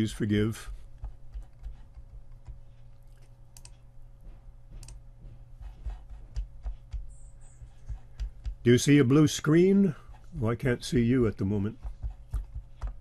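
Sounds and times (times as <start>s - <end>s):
low steady hum: 0.0s - 13.0s
mouse and keyboard clicks: 1.0s - 3.8s.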